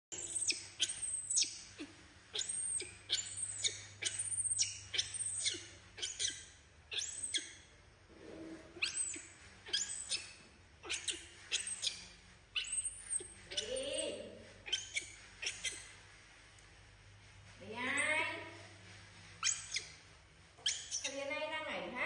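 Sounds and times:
baby monkey squealing: 0.1s - 7.7s, 8.8s - 16.0s, 19.4s - 20.0s, 20.6s - 21.2s.

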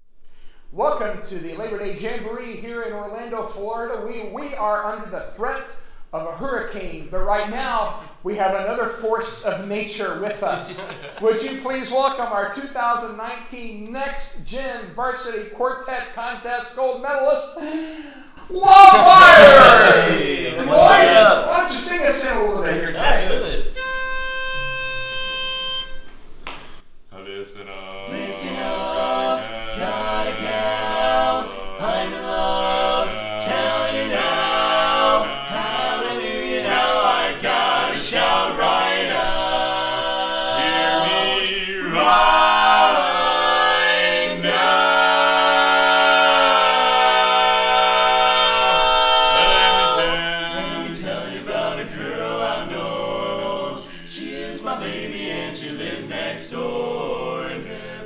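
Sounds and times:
men singing a cappella harmony: 27.1s - 58.0s.

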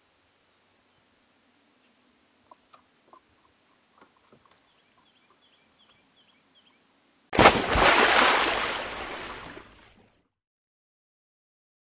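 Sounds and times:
faint bird chirps: 0.8s - 6.9s.

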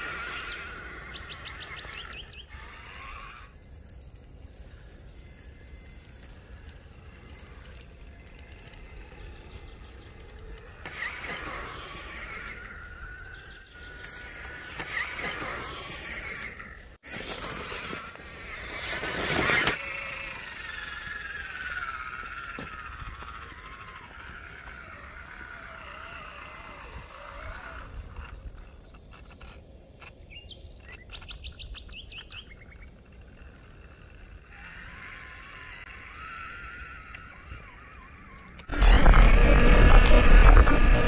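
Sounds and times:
electric motor whining: 0.0s - 3.6s, 4.7s - 28.6s, 34.3s - 41.0s.

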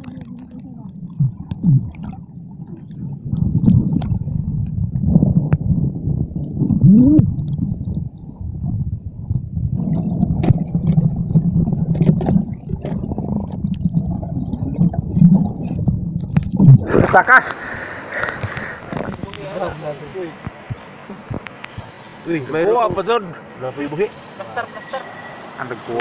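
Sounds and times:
underwater gurgling rumble: 0.0s - 24.4s
short rising gurgle: 1.1s - 8.9s.

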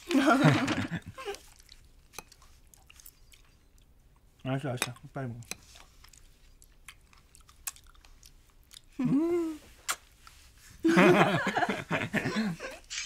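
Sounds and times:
chewing and mouth clicks: 1.2s - 9.0s.

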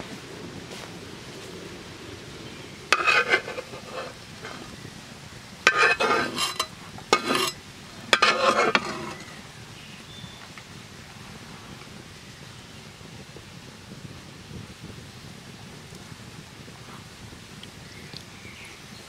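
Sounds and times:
knife scraping metal pan: 2.9s - 4.6s, 5.7s - 9.4s.

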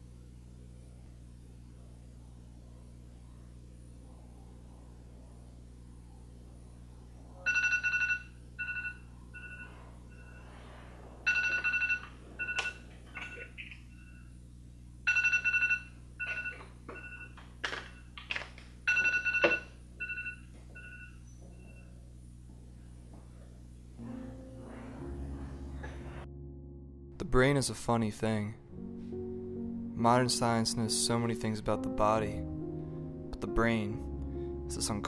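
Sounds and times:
phone two-note tone and beeps: 11.3s - 14.3s.

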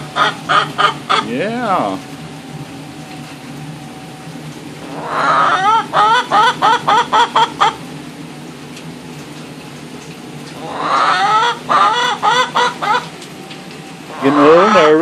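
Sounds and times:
hen clucking: 0.0s - 1.4s, 4.8s - 7.9s, 10.6s - 13.2s, 14.1s - 15.0s
hen drawn-out call: 0.0s - 1.4s, 4.8s - 7.8s, 10.6s - 13.1s, 14.1s - 15.0s.

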